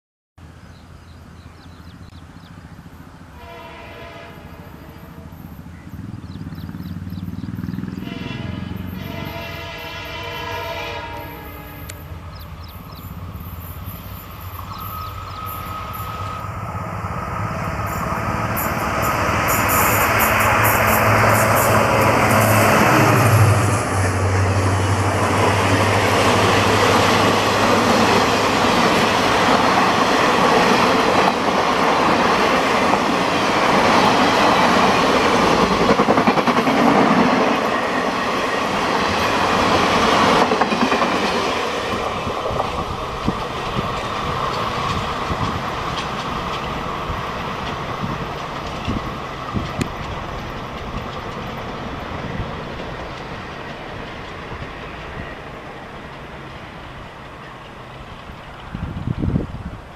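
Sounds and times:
train rushing past: 1.2s - 59.9s
wheels clattering over rails: 17.7s - 55.0s.

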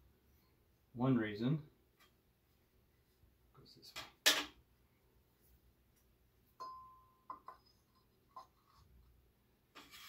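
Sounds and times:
ringing metal clink: 6.6s - 7.4s.

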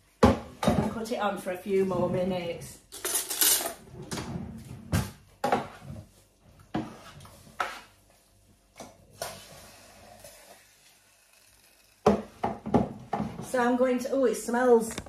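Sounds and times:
metal utensils rattling in drawer: 3.0s - 3.8s.

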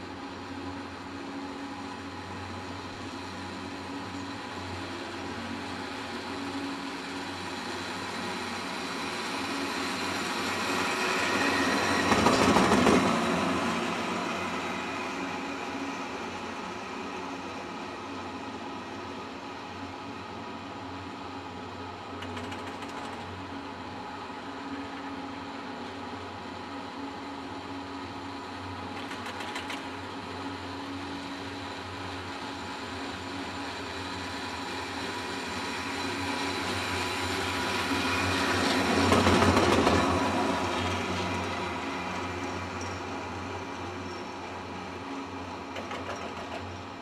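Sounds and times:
chairlift humming: 30.1s - 45.7s.

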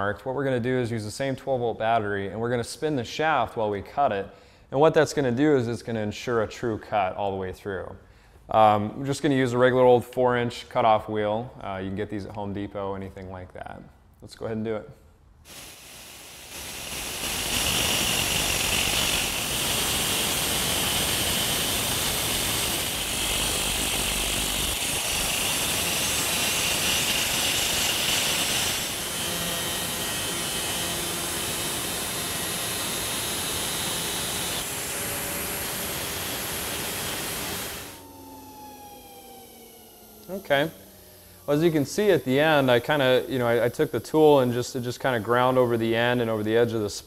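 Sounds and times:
angle grinder cutting steel: 15.5s - 46.4s
grinder whine spinning down: 15.5s - 46.5s.

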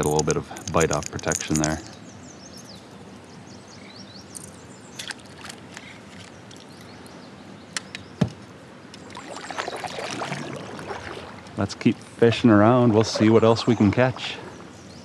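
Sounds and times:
gear clicking against hull: 0.0s - 2.0s
paddle swishing through water: 9.0s - 15.0s.

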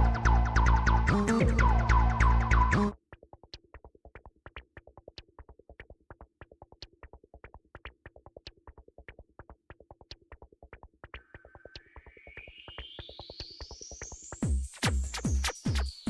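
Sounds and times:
electronic background music: 0.0s - 3.0s, 11.0s - 16.0s.

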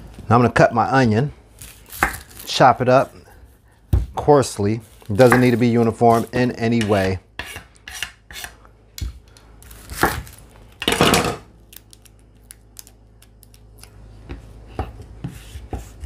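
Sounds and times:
onion skin being peeled: 1.6s - 2.6s, 11.7s - 14.0s.

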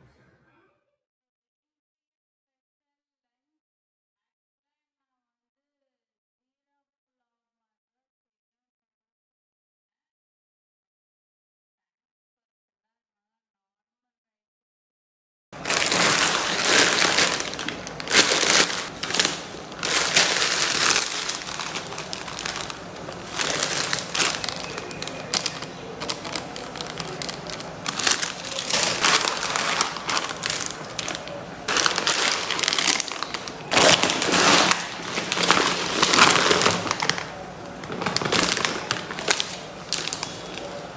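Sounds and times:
plastic bags crinkling: 15.6s - 40.9s.

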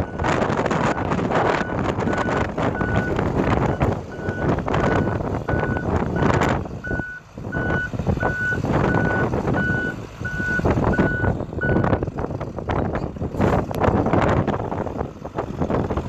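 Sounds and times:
truck backup alarm beeping: 0.0s - 12.0s
diesel engine running: 0.0s - 16.0s.

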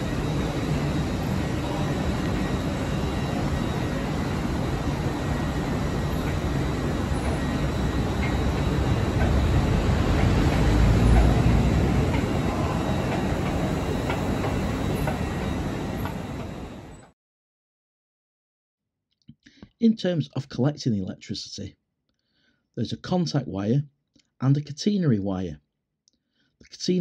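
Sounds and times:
train rumble and hum: 0.0s - 17.1s.

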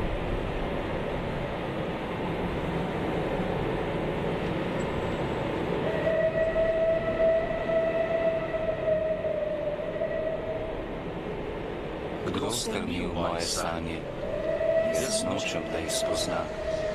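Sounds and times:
train wagons rolling on rails: 0.0s - 7.3s
train horn: 5.8s - 10.4s.

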